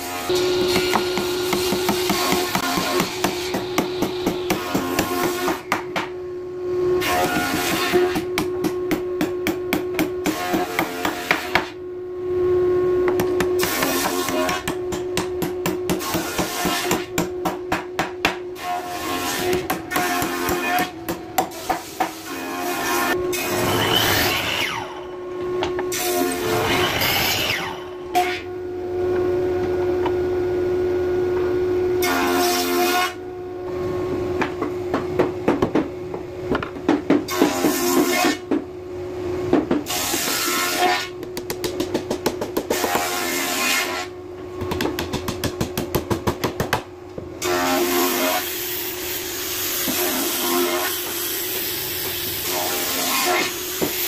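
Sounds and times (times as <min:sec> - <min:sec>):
saw cutting through timber: 0:00.0 - 0:05.7, 0:18.6 - 0:24.9, 0:25.9 - 0:27.8, 0:47.4 - 0:54.0
hammer striking wood: 0:00.6 - 0:06.1, 0:07.2 - 0:11.8, 0:13.1 - 0:18.4, 0:41.2 - 0:43.1.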